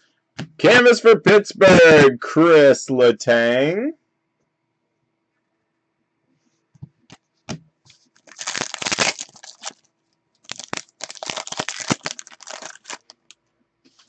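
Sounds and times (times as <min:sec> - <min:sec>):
foil wrapper crinkling and tearing: 0:08.2 - 0:13.4.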